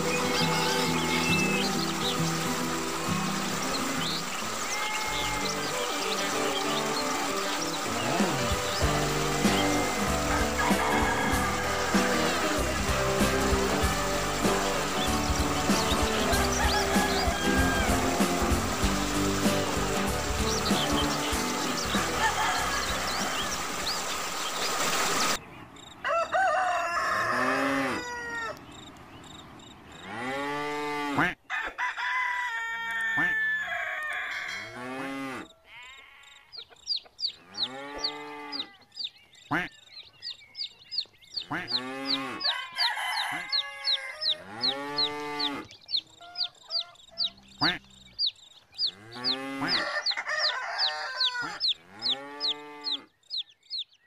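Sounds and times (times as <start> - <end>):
rooster crowing: 9.2 - 12.6, 16.2 - 18.3, 22.0 - 23.5, 26.0 - 28.6, 31.5 - 34.8, 42.3 - 45.1, 49.6 - 53.0
chicks peeping: 36.5 - 54.0
chicken clucking: 45.4 - 53.4.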